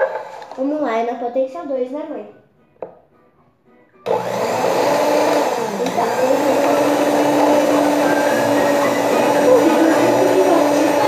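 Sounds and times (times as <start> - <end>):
stand mixer humming: 4.1 - 11.0.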